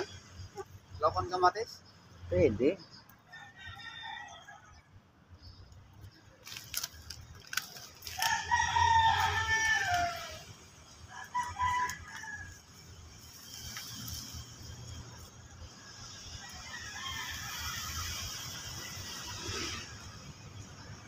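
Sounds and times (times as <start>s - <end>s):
rooster crowing: 3.3s - 4.9s, 8.1s - 12.8s, 16.2s - 18.4s.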